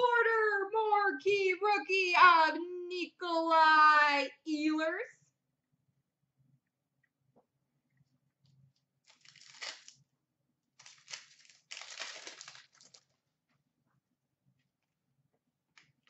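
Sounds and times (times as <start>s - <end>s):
card pack wrapper tearing and crinkling: 9.0s - 10.0s, 10.8s - 13.2s.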